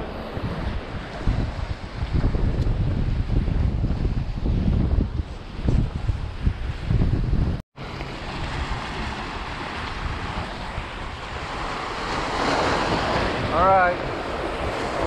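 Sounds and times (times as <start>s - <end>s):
gusty wind on microphone: 0.0s - 15.0s
surf washing against rocks: 7.8s - 15.0s.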